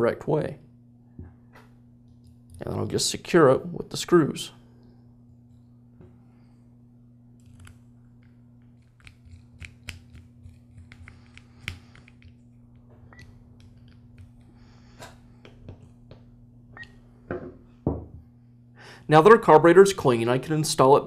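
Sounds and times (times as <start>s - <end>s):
faint steady hum: 0.0s - 21.0s
screwdriver clicking and scraping: 8.7s - 12.4s.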